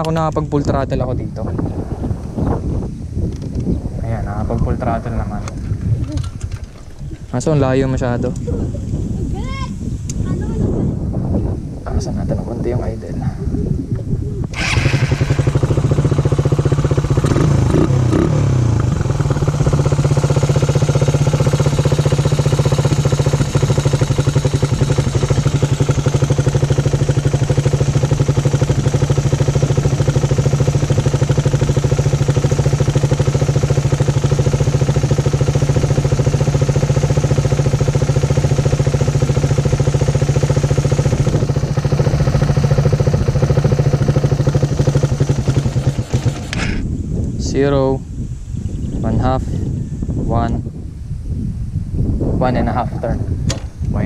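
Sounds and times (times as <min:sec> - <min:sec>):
motorcycle engine idling: 0:14.5 - 0:47.1.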